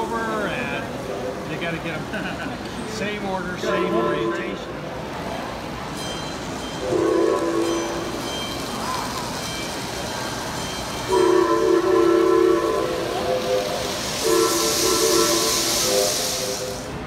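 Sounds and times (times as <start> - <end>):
model train horn chord: 3.6 - 4.6, 6.8 - 8.0, 11.1 - 16.9
rushing hiss: 11.0 - 17.0.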